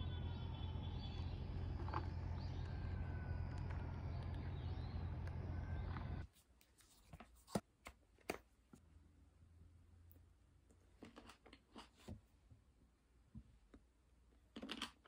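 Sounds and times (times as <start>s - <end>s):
faint bird chirps: 0.0s - 6.2s
low hum: 0.0s - 6.2s.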